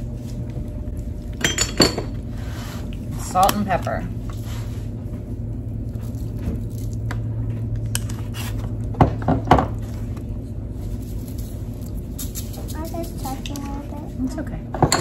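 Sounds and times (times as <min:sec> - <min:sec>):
low hum: 0:00.0 - 0:14.7
shakers shaking: 0:10.8 - 0:13.8.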